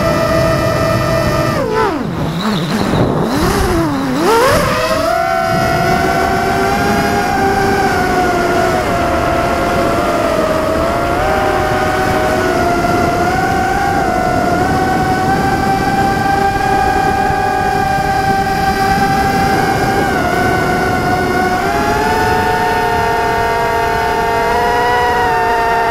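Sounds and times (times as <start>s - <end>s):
quadcopter motors whining: 0.0s - 25.9s.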